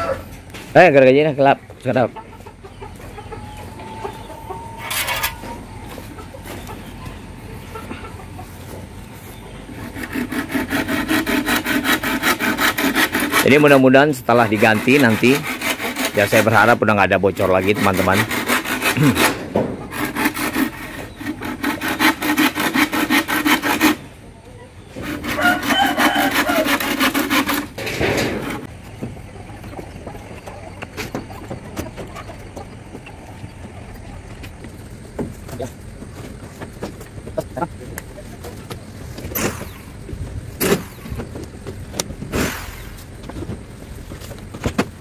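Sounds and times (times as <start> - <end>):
hand saw cutting wood: 4.8 - 5.6, 9.7 - 24.1, 24.9 - 28.7, 39.2 - 39.9
wooden board scraping metal roof: 4.8 - 6.6, 9.7 - 24.2, 24.8 - 37.7, 38.4 - 45.0.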